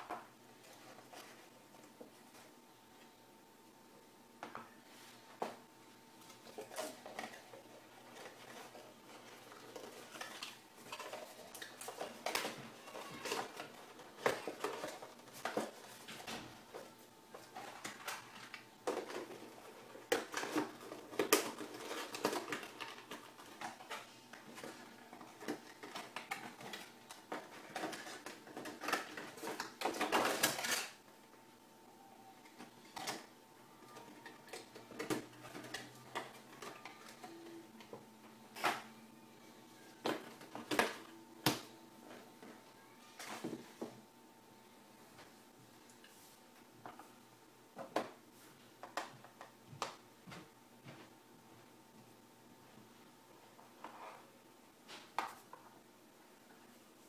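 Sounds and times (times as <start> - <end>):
faint steady hum: 0.0 - 57.0
cardboard and plastic handling: 6.3 - 31.0.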